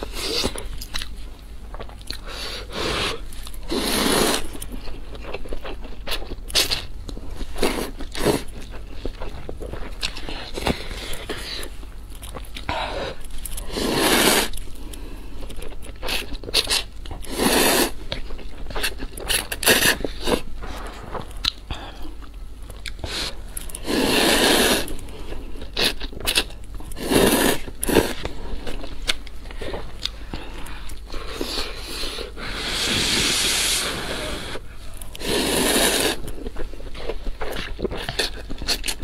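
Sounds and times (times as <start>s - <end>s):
chewing: 0.0s - 2.4s, 3.2s - 32.0s, 34.9s - 39.0s
noodle slurping: 23.1s - 25.0s, 27.0s - 28.2s, 35.2s - 36.2s.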